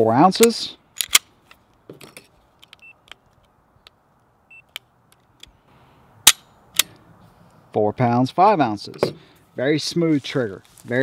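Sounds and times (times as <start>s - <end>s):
short electronic beeps: 2.8s - 3.0s, 4.5s - 4.7s.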